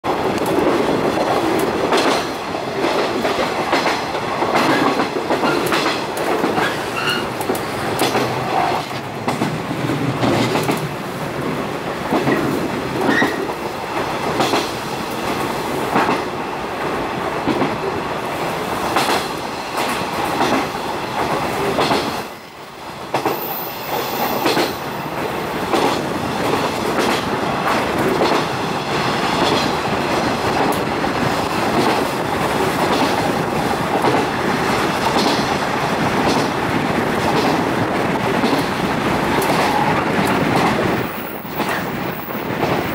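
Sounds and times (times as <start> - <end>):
train wheels rumbling on rail: 0.0 - 42.9
wheels clicking over rail joints: 29.4 - 42.9.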